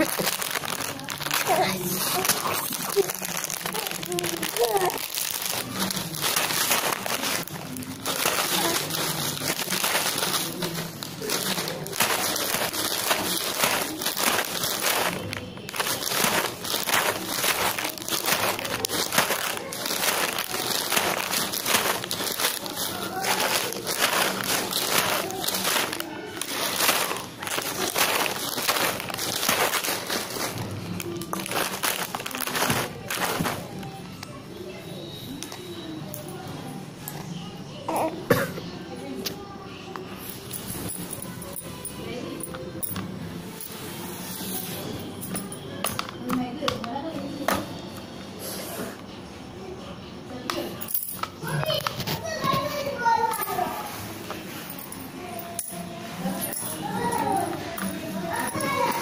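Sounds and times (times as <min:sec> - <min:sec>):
plastic packet crinkling: 0:00.0 - 0:34.3.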